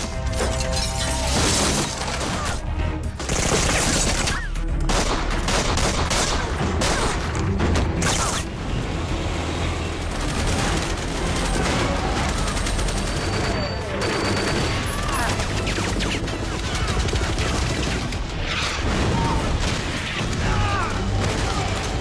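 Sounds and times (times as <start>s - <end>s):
dramatic music: 0.0s - 22.0s
gunfire bursts: 3.2s - 7.2s.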